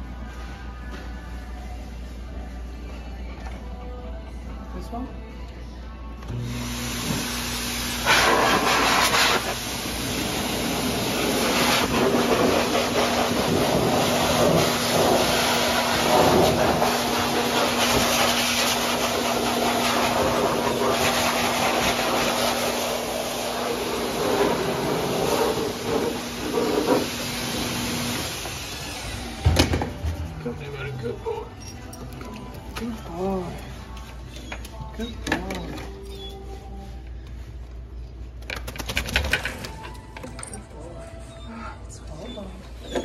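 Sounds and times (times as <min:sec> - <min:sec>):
blow dryer motor hum: 0:06.3 - 0:31.5.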